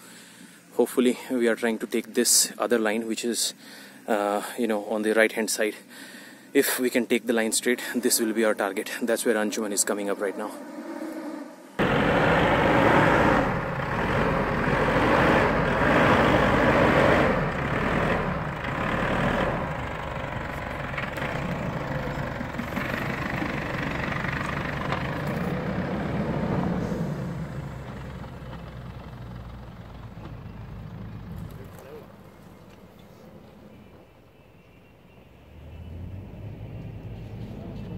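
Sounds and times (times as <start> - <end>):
diesel engine working hard: 11.8 - 33.7
tyres churning through sand: 11.8 - 33.7.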